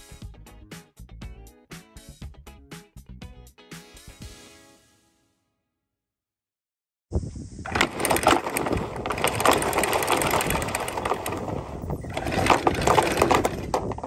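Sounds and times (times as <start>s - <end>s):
anchor windlass hauling chain: 7.6s - 14.0s.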